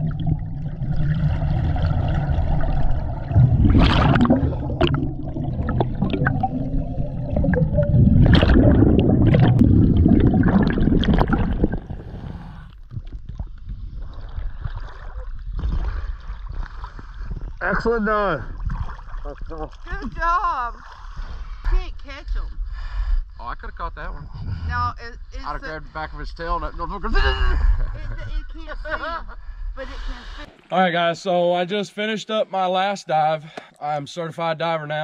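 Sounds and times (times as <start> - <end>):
underwater bubbles gurgling: 0.0 - 17.6.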